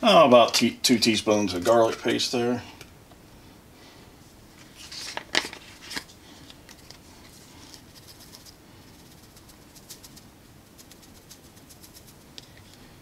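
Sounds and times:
faint scattered ticks: 7.9s - 12.8s.

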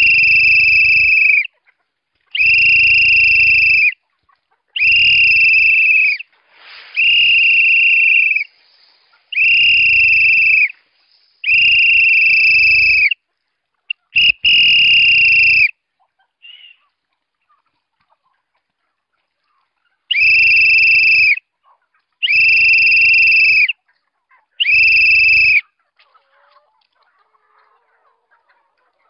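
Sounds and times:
man whistling long notes: 0.0s - 1.5s, 2.4s - 4.0s, 4.8s - 6.3s, 6.9s - 8.6s, 9.3s - 10.8s, 11.4s - 13.2s, 14.2s - 15.7s, 20.1s - 21.4s, 22.2s - 23.7s, 24.6s - 25.6s.

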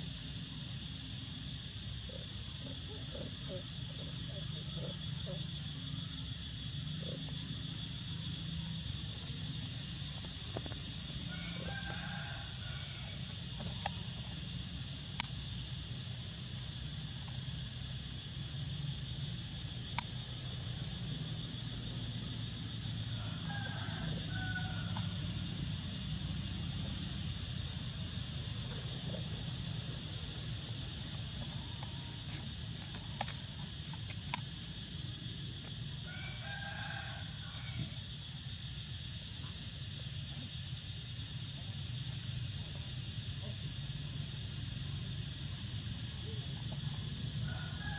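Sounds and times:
steady high hiss: 0.0s - 47.9s
rooster crowing: 11.2s - 13.4s, 23.1s - 25.5s, 36.0s - 38.0s, 47.4s - 47.9s.

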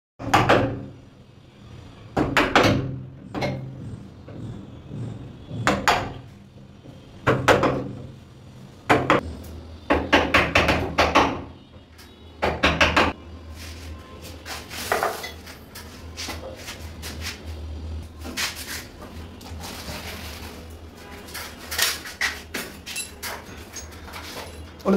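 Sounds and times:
hammer striking a chisel into wood: 9.9s - 11.5s.

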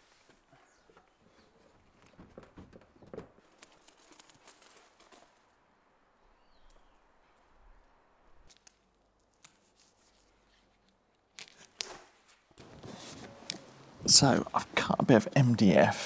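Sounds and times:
soft insulation rustle: 0.0s - 5.6s
crisp rustling snips: 3.4s - 5.5s, 8.4s - 12.4s.

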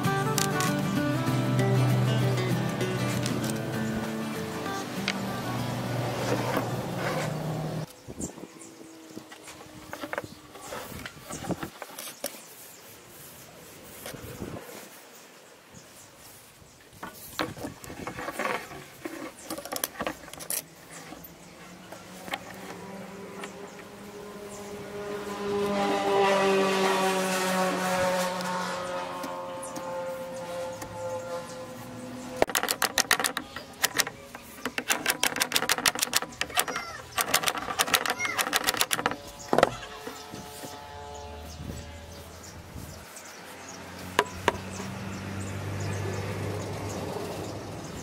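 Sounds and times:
metal pliers clicking on bamboo: 0.2s - 0.8s.

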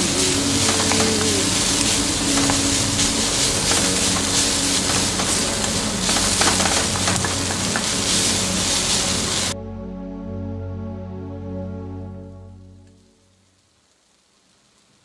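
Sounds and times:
onions sizzling in hot oil: 0.0s - 9.6s, 13.4s - 15.0s
wooden spatula scraping pan: 0.0s - 9.6s
soft music: 0.0s - 13.5s.

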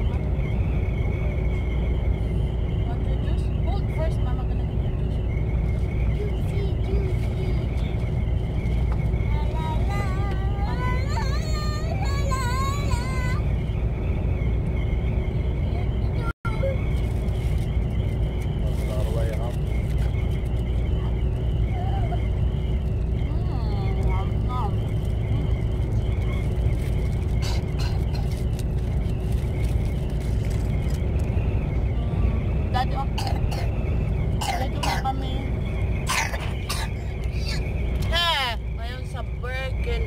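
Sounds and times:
road noise: 0.0s - 40.0s
truck engine rumble: 0.0s - 40.0s
girl singing: 9.3s - 13.4s.

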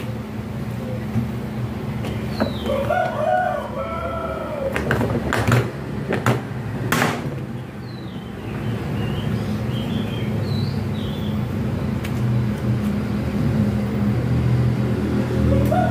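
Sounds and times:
rooster crowing: 2.6s - 4.9s, 15.5s - 15.9s
plastic panels knocking and clicking: 4.8s - 7.3s.

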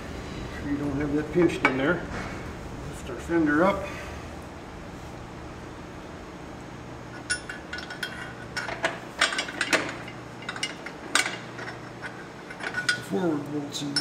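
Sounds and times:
metallic clinks of bolt and hand tool: 7.2s - 13.2s.

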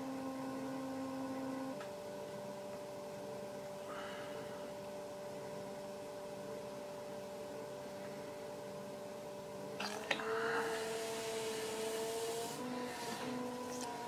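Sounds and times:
pottery wheel motor whine: 0.0s - 14.0s.

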